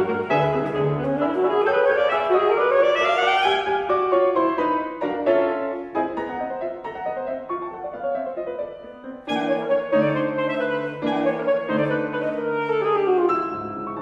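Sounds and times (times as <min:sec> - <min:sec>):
alto saxophone: 0:00.0 - 0:04.0, 0:09.2 - 0:14.0
grand piano: 0:00.0 - 0:14.0.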